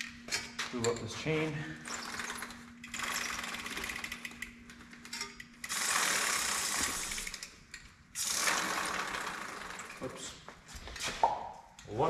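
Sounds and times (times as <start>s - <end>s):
bike chain clicking over sprockets: 1.9s - 10.1s.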